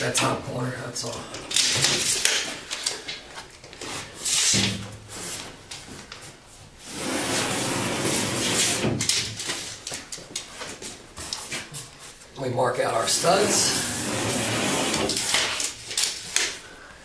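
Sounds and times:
tape measure sliding on drywall: 0:03.8 - 0:05.5, 0:06.8 - 0:09.8, 0:13.1 - 0:16.6.

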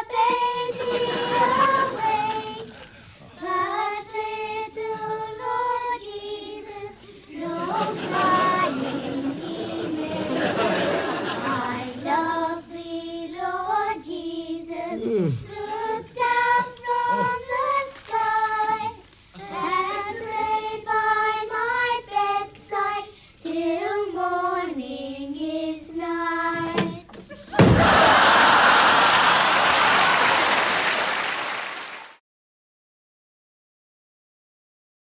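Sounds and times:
children singing a carol: 0:00.0 - 0:27.1.

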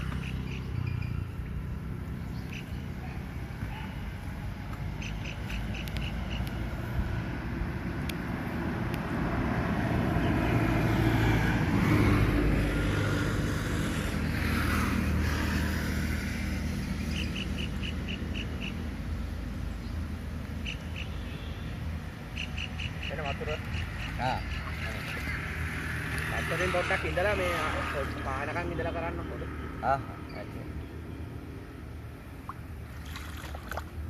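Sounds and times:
bird chirping rapidly: 0:00.0 - 0:01.4, 0:02.2 - 0:03.0, 0:05.0 - 0:06.6, 0:17.0 - 0:18.9, 0:20.6 - 0:25.6.

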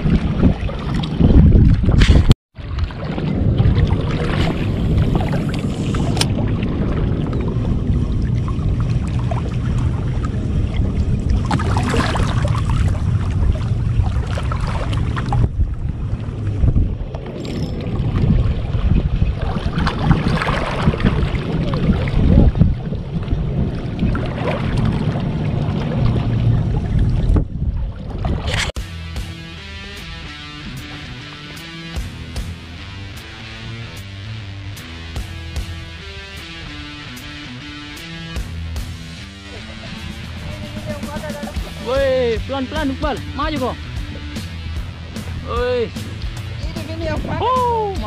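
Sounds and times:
wind buffeting microphone: 0:00.0 - 0:28.8, 0:39.0 - 0:48.0
sea water washing on rocks: 0:02.6 - 0:28.8.

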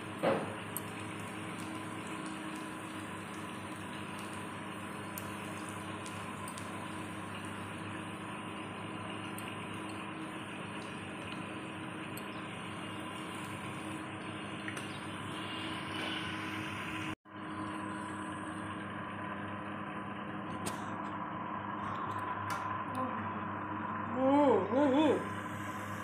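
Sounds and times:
oil sizzling in deep-frying: 0:00.0 - 0:19.6.

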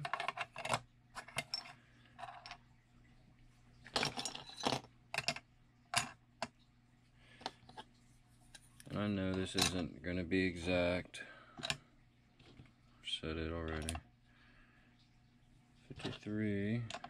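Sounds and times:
small hard parts clattering: 0:00.0 - 0:02.6, 0:03.8 - 0:06.6, 0:08.8 - 0:09.9, 0:15.9 - 0:17.0.

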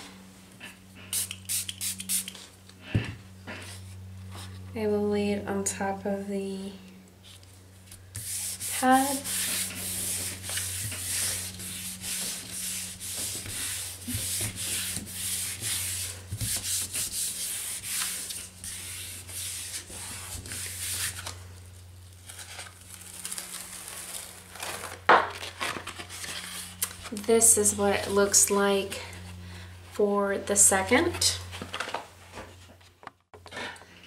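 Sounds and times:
low electrical hum: 0:00.0 - 0:34.0
hands rubbing paper: 0:08.2 - 0:21.3.

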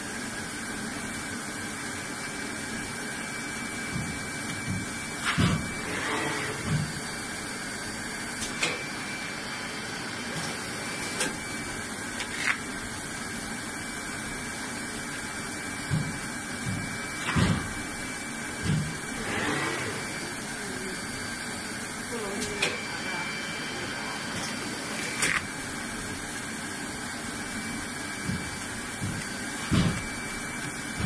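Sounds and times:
machine blower hissing: 0:04.2 - 0:07.3, 0:18.9 - 0:21.4.

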